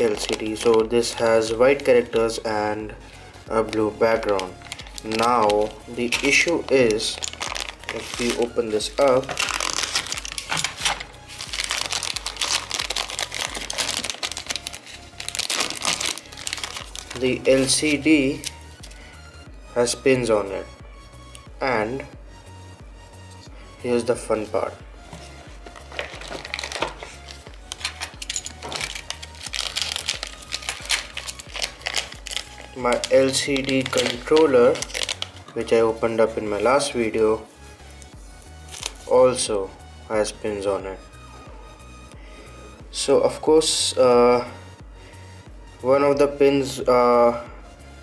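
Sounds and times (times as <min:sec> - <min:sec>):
plastic bag crinkling: 0:00.0 - 0:00.9, 0:03.7 - 0:19.0, 0:25.7 - 0:35.6.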